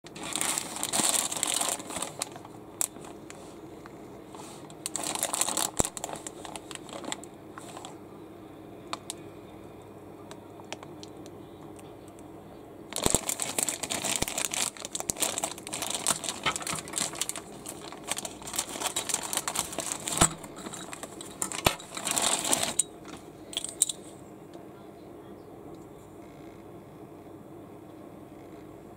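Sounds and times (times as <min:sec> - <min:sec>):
plastic bag crinkling: 0:00.1 - 0:03.6, 0:04.3 - 0:08.0, 0:10.6 - 0:11.1, 0:12.9 - 0:24.0.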